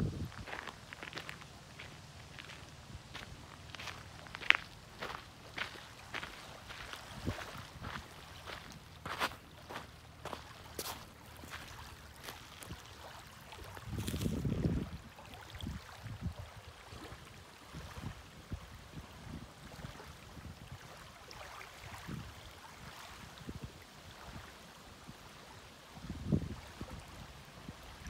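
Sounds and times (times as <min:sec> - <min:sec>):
wind buffeting microphone: 0:00.0 - 0:01.4, 0:02.3 - 0:10.4, 0:13.6 - 0:16.6
waves lapping on gravel: 0:00.0 - 0:28.0.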